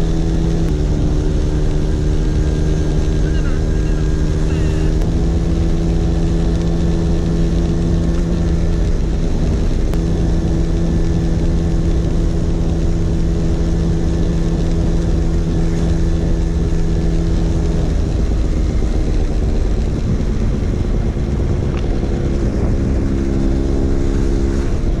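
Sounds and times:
scooter engine running: 0.0 - 25.0
wind rumble on microphone: 0.0 - 25.0.

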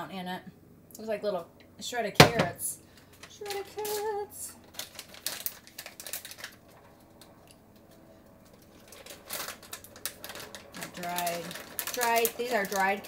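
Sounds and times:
plastic bag crinkling: 3.0 - 7.7, 8.4 - 13.0.

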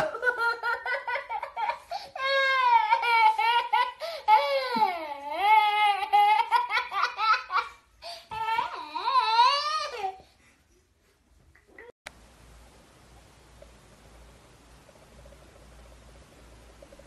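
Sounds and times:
toddler laughing: 0.0 - 10.2.

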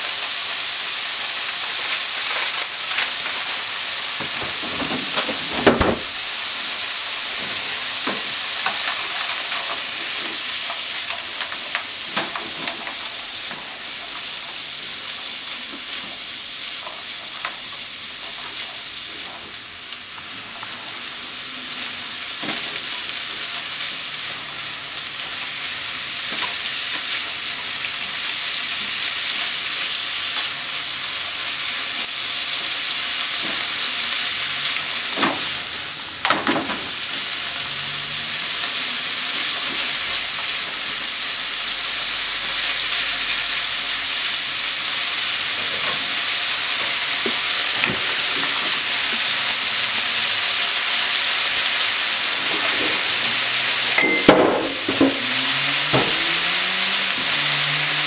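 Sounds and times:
food sizzling in a frying pan: 0.0 - 58.0
wooden utensils scraping a pan: 52.3 - 53.4.

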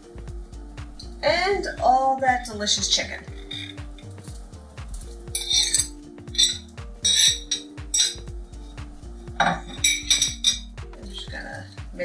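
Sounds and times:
background music with beat: 0.0 - 12.0.

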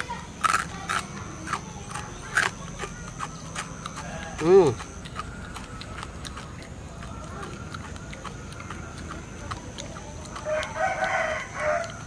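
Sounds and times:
rooster crowing: 10.4 - 12.0.

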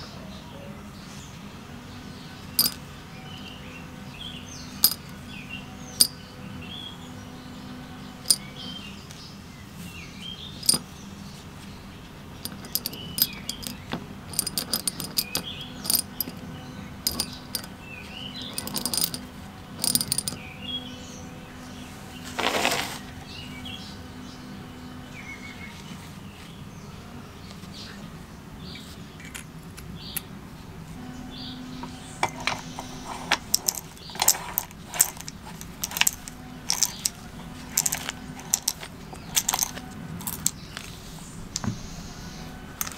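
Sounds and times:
steel balls clicking on metal: 2.6 - 2.8, 4.8 - 5.1, 8.3 - 8.5, 10.6 - 10.8, 12.4 - 16.4, 17.0 - 17.7, 18.4 - 20.4, 32.2 - 40.9.

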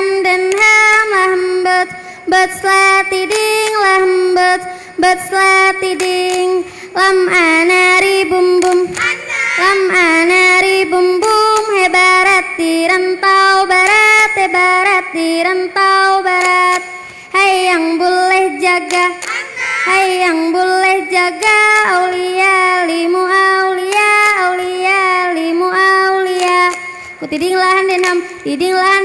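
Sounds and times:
girls singing in unison: 0.0 - 29.0
hand claps: 0.4 - 0.8, 3.1 - 4.0, 5.8 - 6.7, 7.6 - 9.7, 10.4 - 12.0, 13.7 - 14.6, 16.3 - 17.3, 18.3 - 22.1, 23.8 - 24.7, 26.2 - 29.0.

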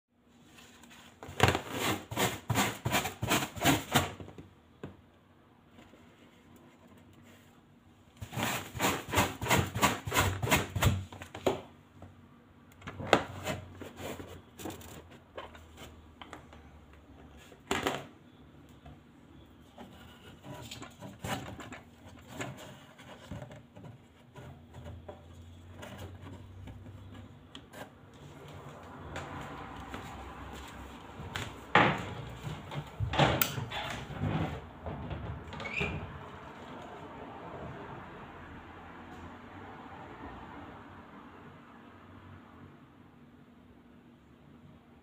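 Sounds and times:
objects being handled: 12.8 - 18.1.

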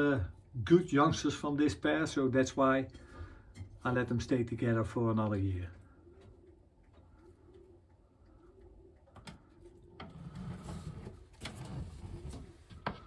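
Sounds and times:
pigeons cooing: 5.7 - 11.4.

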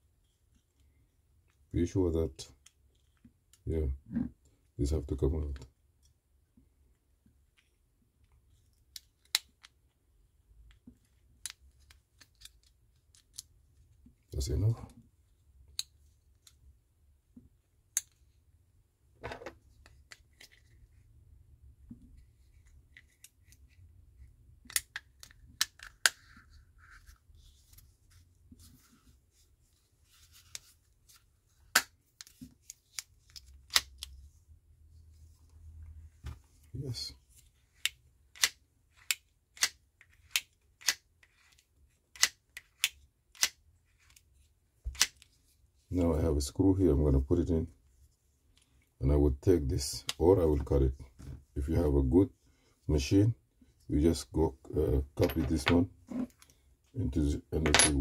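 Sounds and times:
small plastic clicks: 37.8 - 44.2
plastic clicks and snaps: 42.1 - 43.6.

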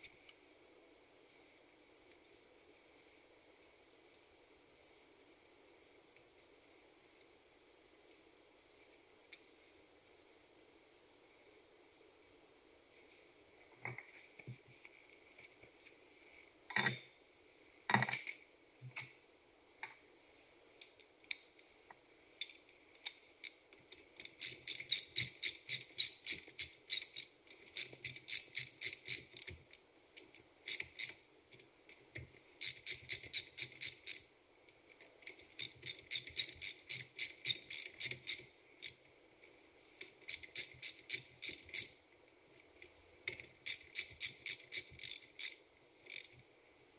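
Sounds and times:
ratchet wrench clicking: 24.2 - 29.6, 30.7 - 31.2, 32.6 - 34.2, 35.6 - 39.0, 40.2 - 42.0, 43.3 - 46.3.

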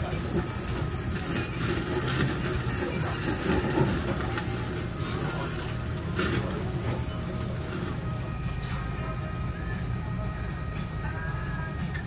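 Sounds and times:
fat flaring in flames: 0.0 - 9.0
meat sizzling on a grill: 0.0 - 9.2
metal tongs clicking on grill: 0.6 - 5.6, 6.2 - 6.7.

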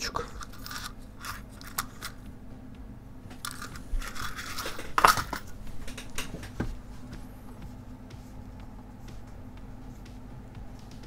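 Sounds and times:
small items rustling and clicking: 0.0 - 2.3, 3.3 - 6.6
faint steady hum: 0.0 - 11.0.

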